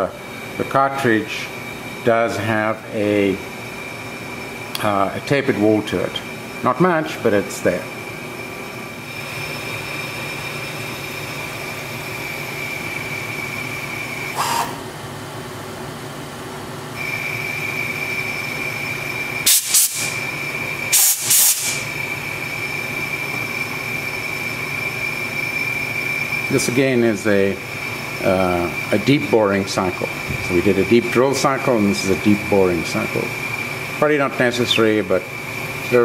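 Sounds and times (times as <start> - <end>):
lathe cutting whine: 0.0 - 21.0, 21.6 - 36.0
short loud noisy bursts: 19.5 - 20.3, 20.9 - 22.0.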